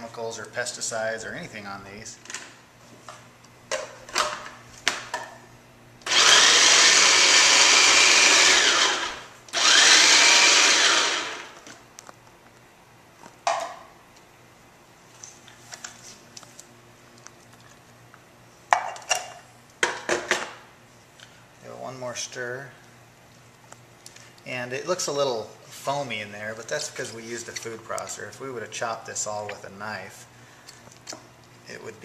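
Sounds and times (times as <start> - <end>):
food processor chopping tomatoes: 6.0 - 11.6.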